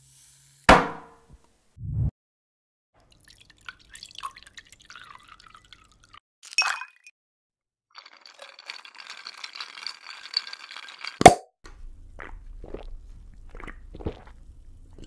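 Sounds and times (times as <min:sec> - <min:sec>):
liquid trickling: 0:03.0 - 0:07.1, 0:08.0 - 0:11.3
ice clinking in a cup: 0:08.0 - 0:11.4.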